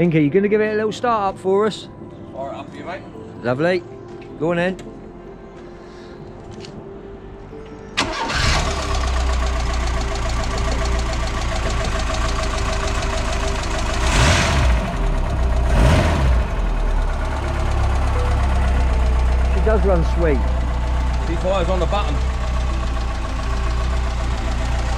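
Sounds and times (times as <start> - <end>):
car engine starting and running: 7.9 - 24.9.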